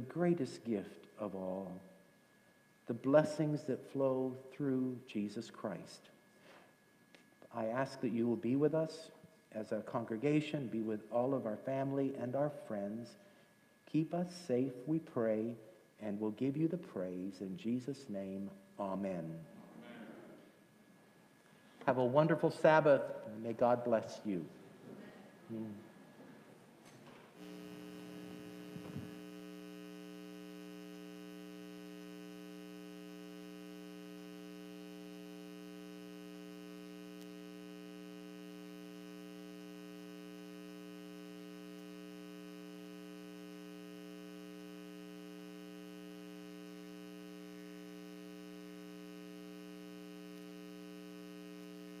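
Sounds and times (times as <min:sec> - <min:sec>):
electrical mains hum: 0:00.0 - 0:52.0.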